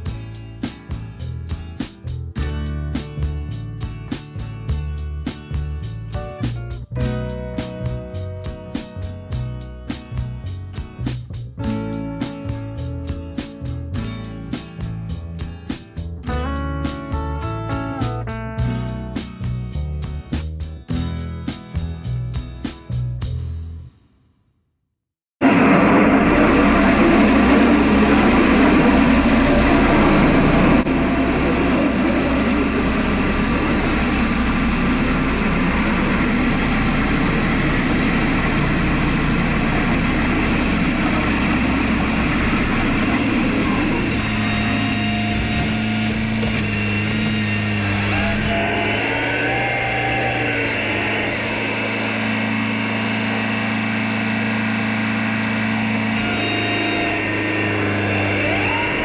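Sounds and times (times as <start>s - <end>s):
tractor diesel engine running: 25.4s - 59.0s.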